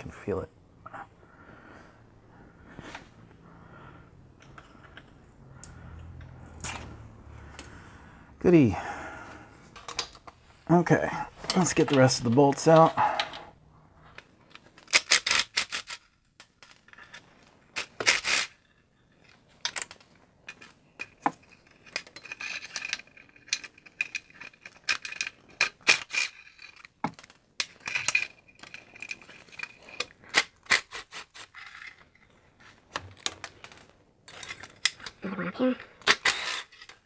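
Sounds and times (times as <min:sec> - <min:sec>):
metal clicks and clinks: 0:19.2 - 0:30.4.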